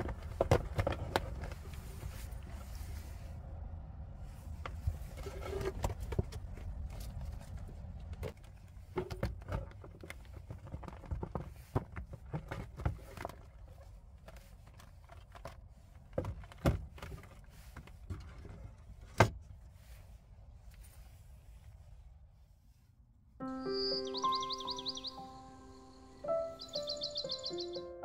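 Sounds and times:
items clattering in wooden crate: 0:00.0 - 0:02.3, 0:08.1 - 0:19.4.

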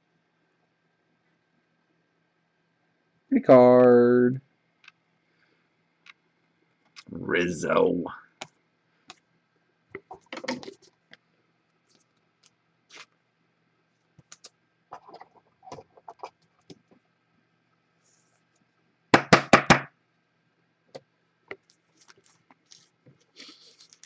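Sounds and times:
sharp knocks on hard surface: 0:19.2 - 0:19.9.

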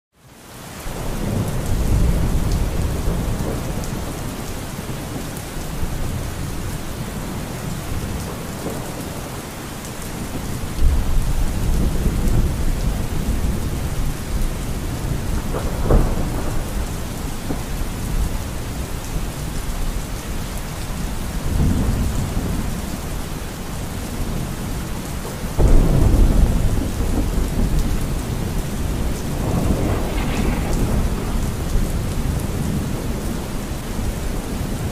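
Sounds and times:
steady rain: 0:00.1 - 0:34.9
thunder rumbling: 0:00.9 - 0:20.3, 0:21.0 - 0:34.9.

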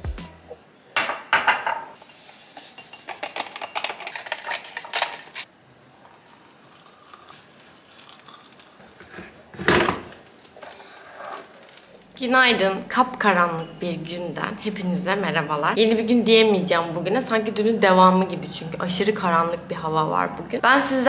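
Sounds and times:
ceramic mugs clinking: 0:01.0 - 0:04.2.

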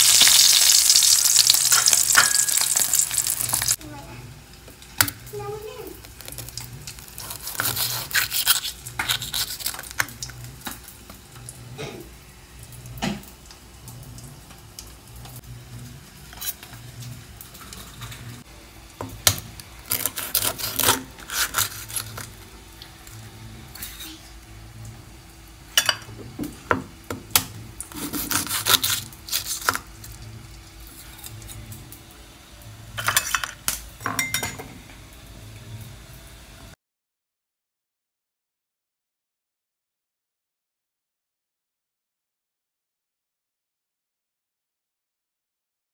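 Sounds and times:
knife scraping through egg: 0:07.0 - 0:10.0, 0:19.9 - 0:22.3, 0:27.9 - 0:29.8.

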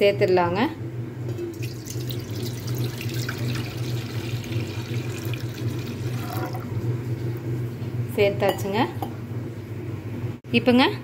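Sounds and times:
milk pouring into steel pot: 0:01.5 - 0:06.8.

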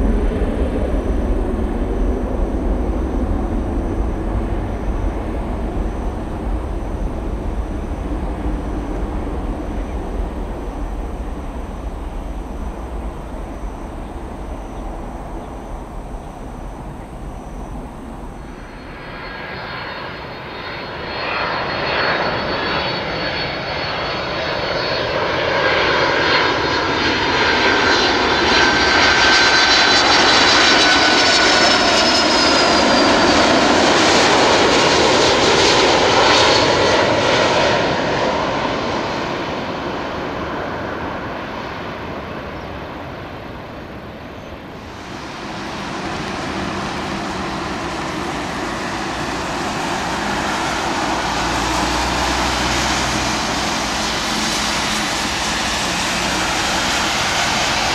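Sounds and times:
jet passing low: 0:00.0 - 0:57.9
high whines sliding down in pitch: 0:44.8 - 0:57.9.

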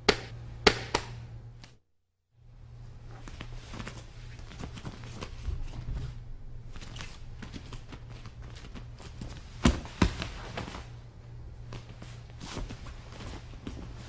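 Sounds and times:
steady low hum: 0:00.0 - 0:14.0
feet shuffling on a mat: 0:11.6 - 0:14.0.

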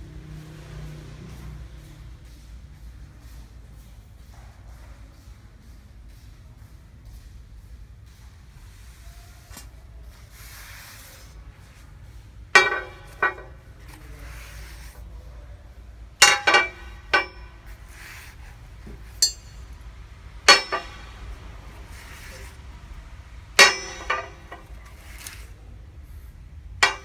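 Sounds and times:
metal wrenches clinking on glass: 0:12.6 - 0:14.0, 0:16.2 - 0:18.0, 0:20.5 - 0:21.2, 0:23.6 - 0:25.4.

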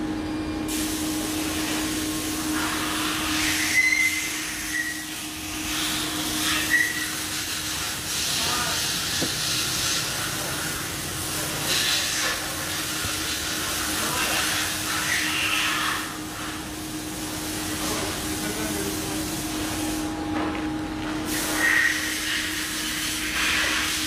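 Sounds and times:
milling machine hiss and hum: 0:00.0 - 0:24.0
high squeals: 0:03.4 - 0:05.2, 0:06.4 - 0:07.3.

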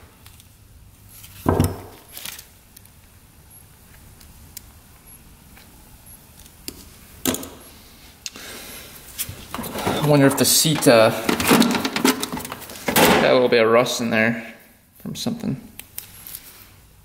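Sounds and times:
metal parts knocking: 0:09.6 - 0:13.1.

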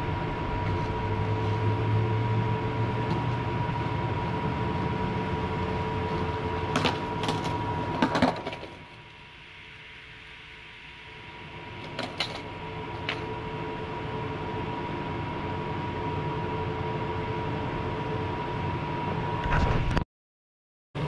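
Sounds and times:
distant engine drone: 0:00.0 - 0:19.9.

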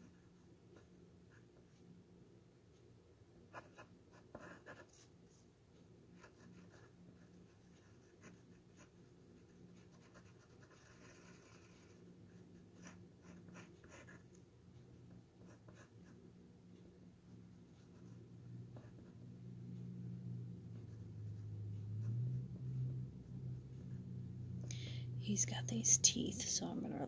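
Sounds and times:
low steady hum: 0:00.0 - 0:27.0
marker scratching on wood: 0:06.2 - 0:12.0.

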